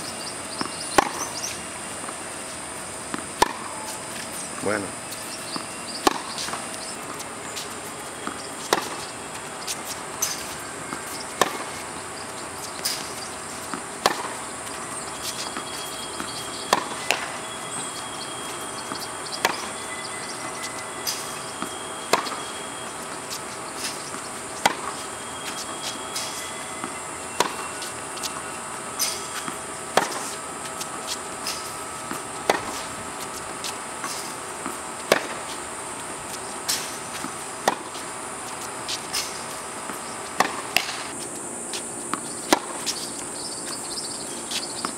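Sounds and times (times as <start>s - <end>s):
high-pitched buzz: 0.0s - 44.9s
racket hitting tennis ball: 0.6s - 2.5s, 3.1s - 43.8s
ball bouncing on hard court: 3.1s - 28.4s, 29.1s - 35.5s, 36.7s - 38.0s, 39.2s - 41.1s.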